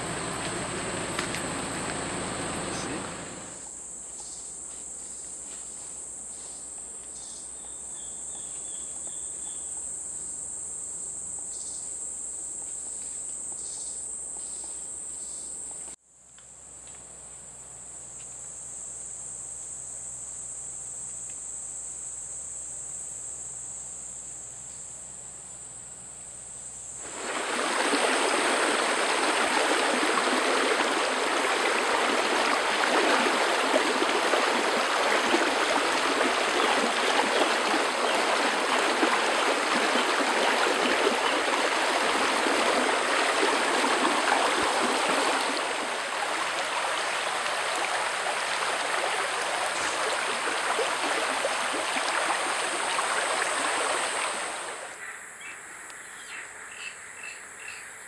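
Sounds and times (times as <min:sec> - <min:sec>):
creek water rushing: 0:00.0 - 0:03.6, 0:27.0 - 0:55.0.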